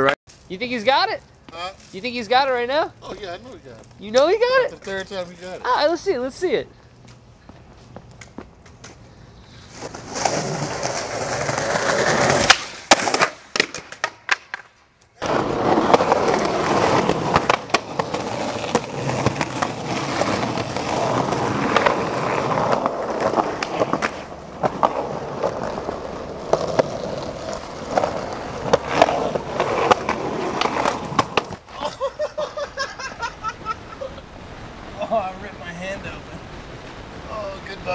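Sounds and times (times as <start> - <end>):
skateboard wheels rolling on concrete: 0.0 - 37.9
skateboard clacks: 9.8 - 31.6.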